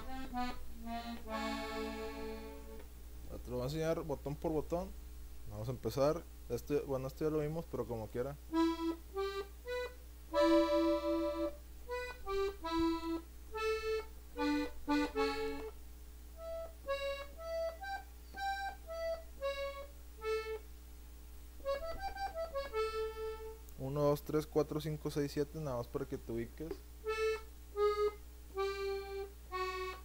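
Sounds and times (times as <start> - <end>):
button accordion single notes: 0.0 - 2.9, 8.5 - 15.8, 16.4 - 20.7, 21.6 - 23.6, 26.6 - 30.0.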